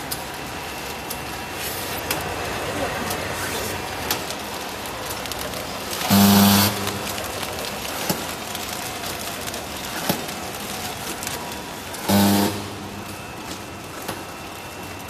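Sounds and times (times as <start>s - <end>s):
packing machine running: 0.0s - 15.0s
loud buzz: 6.0s - 7.2s, 12.0s - 13.5s.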